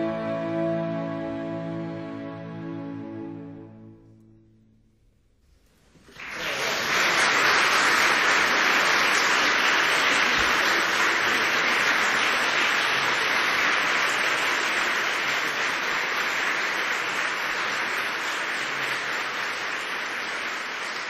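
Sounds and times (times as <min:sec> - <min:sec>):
audience applause: 0:06.0 - 0:21.0.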